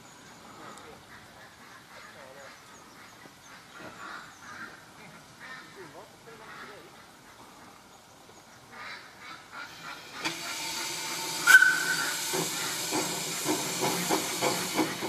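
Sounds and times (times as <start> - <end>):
steam locomotive chuffing: 9.5 - 15.0
steam hissing: 9.6 - 15.0
steam whistle toot: 9.8 - 12.8.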